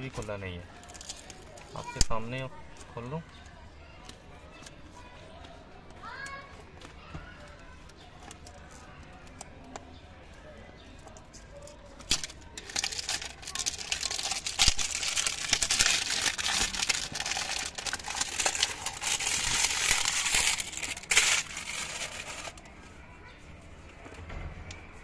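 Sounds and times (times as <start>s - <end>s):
plastic shrink wrap crinkling: 11.9s - 22.8s
plastic crumpled in hand: 12.0s - 22.7s.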